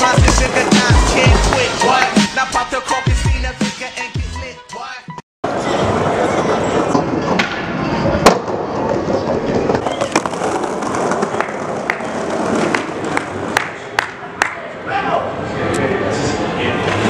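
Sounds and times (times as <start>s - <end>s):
skateboard wheels rolling on stone: 5.5s - 13.8s
skateboard clacks: 5.9s - 14.6s.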